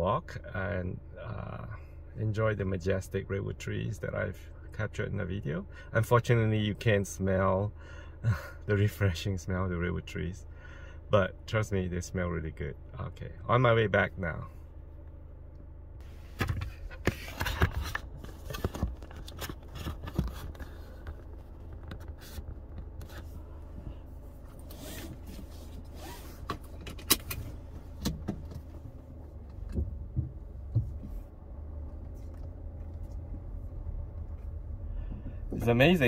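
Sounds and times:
car engine idling: 0:10.3 - 0:36.0.

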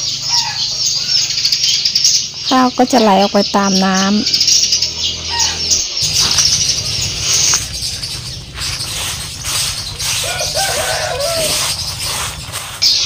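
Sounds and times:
bird calling: 0:00.0 - 0:13.0
rice grains rustling and pattering: 0:06.0 - 0:13.0.

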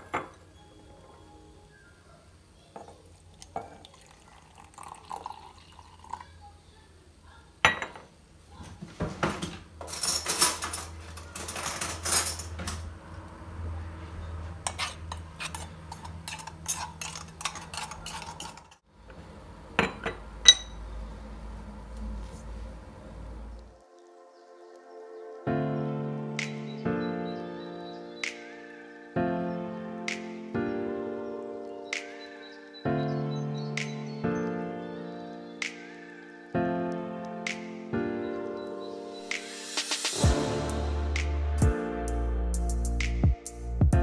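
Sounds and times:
crockery clinking on countertop: 0:00.0 - 0:00.4, 0:03.6 - 0:03.9, 0:07.6 - 0:08.1, 0:19.8 - 0:20.8
ringing porcelain clink: 0:07.6 - 0:08.0, 0:19.8 - 0:20.8.

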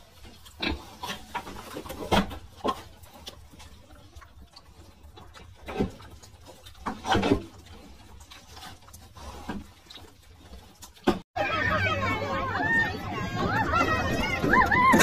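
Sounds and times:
pig grunting and snuffling: 0:00.0 - 0:11.2.

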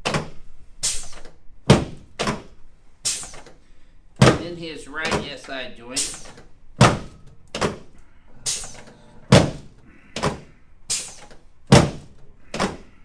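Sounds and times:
thunks on padded table: 0:01.7 - 0:02.5, 0:04.2 - 0:04.4, 0:06.8 - 0:07.9, 0:09.3 - 0:10.5, 0:11.7 - 0:12.8.

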